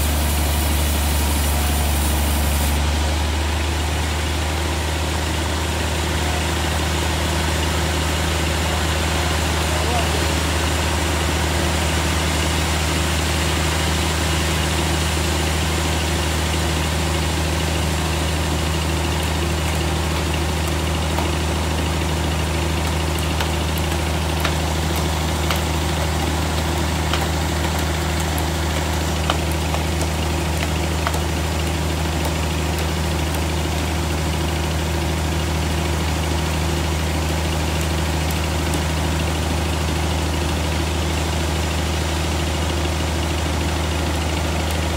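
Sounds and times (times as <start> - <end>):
band saw running: 0.0 - 36.3
hammer striking log: 22.8 - 32.8.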